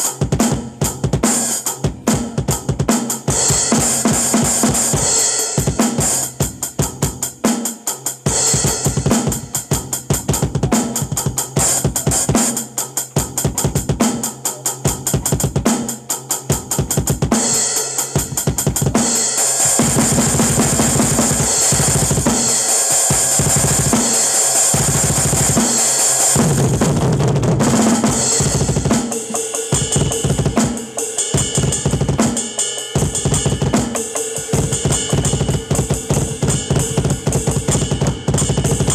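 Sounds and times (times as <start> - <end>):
cymbals ringing: 28.0 - 38.9.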